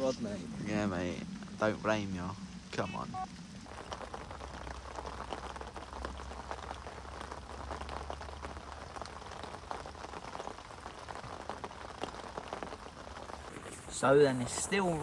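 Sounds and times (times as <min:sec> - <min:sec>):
low steady rumble: 0:00.0 - 0:09.0
rain pattering: 0:00.0 - 0:15.0.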